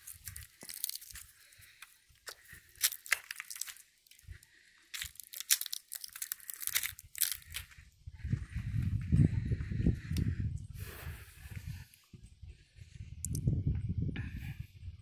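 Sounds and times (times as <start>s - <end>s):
footsteps crunching dry leaves: 0.0s - 4.2s, 4.9s - 7.8s.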